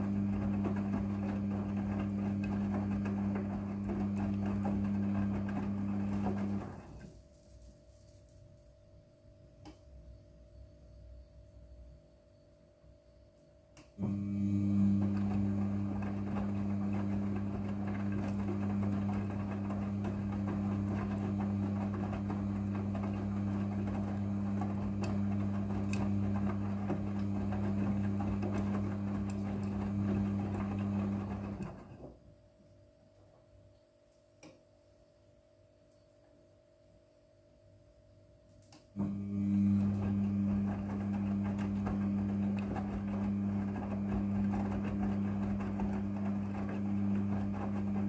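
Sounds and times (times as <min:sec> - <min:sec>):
washing machine drum tumbling: 0:00.0 - 0:07.1, 0:14.0 - 0:32.2, 0:39.0 - 0:48.0.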